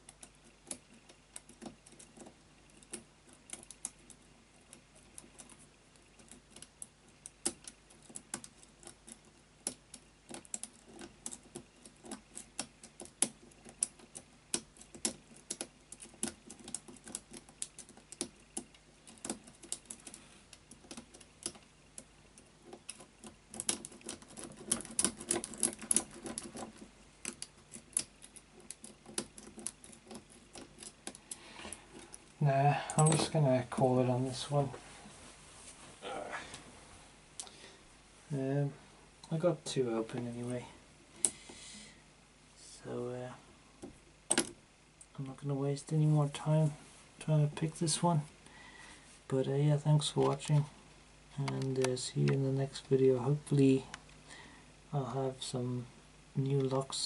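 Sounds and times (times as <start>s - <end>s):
lock pick clicking and scraping: 7.4s - 32.2s.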